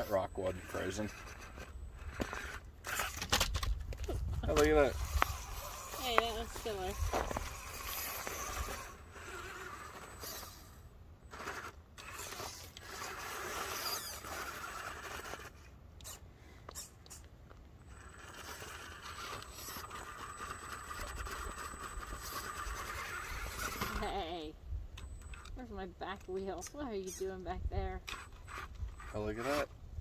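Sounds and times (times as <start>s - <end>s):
tires scraping on stone: 0.0s - 16.2s, 16.8s - 24.3s
small electric motor whirring: 0.0s - 30.0s.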